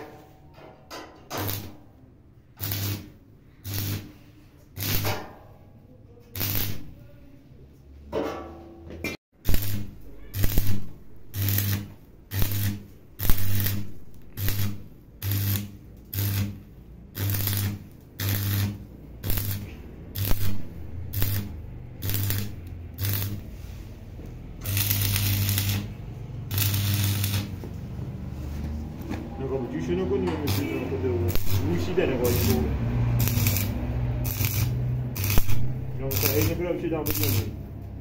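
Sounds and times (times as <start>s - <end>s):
welding arc crackling and buzzing: 1.3s - 1.8s, 2.5s - 4.2s, 4.8s - 5.2s, 6.4s - 7.0s, 9.4s - 23.5s, 24.6s - 27.7s, 30.2s - 37.6s.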